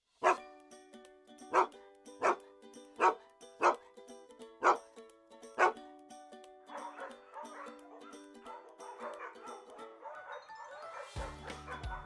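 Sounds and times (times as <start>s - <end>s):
dog barking: 1.5s - 2.4s, 3.0s - 3.8s, 6.7s - 12.0s.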